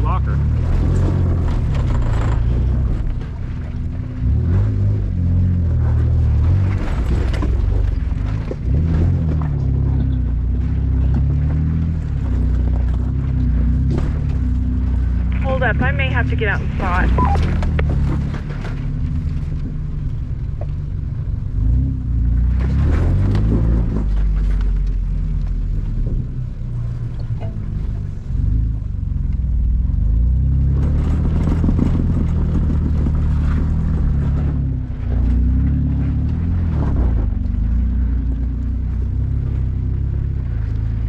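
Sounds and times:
car engine running at low speed: 0.0s - 41.0s
tyres crunching and scraping on rock: 5.7s - 14.8s.

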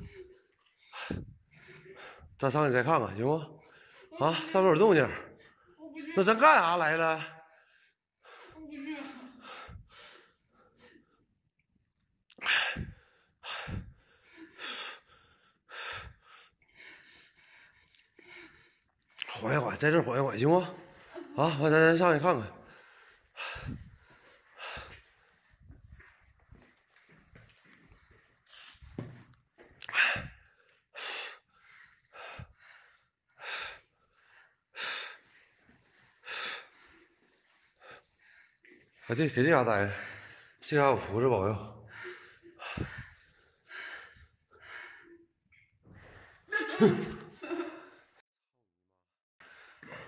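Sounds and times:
person breathing hard: 0.0s - 2.4s, 7.4s - 11.3s, 12.3s - 19.4s, 22.5s - 29.2s, 29.8s - 48.2s, 49.4s - 50.0s.

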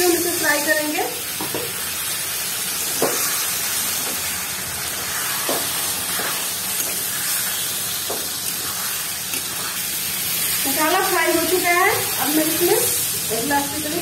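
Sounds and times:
food sizzling in a pan: 0.0s - 14.0s
spatula scraping a pan: 5.0s - 9.9s.

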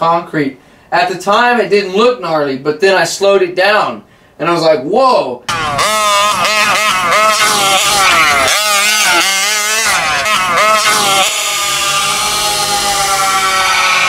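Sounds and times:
model truck engine revving: 5.5s - 14.0s.

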